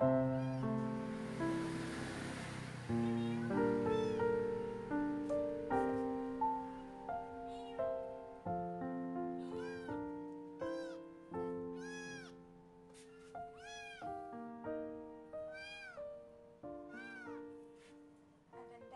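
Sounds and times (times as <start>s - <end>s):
piano music: 0.0s - 18.9s
kitten meowing: 0.2s - 0.9s, 3.0s - 4.5s, 6.6s - 8.1s, 9.4s - 12.4s, 13.0s - 14.2s, 15.4s - 16.1s, 16.9s - 17.6s.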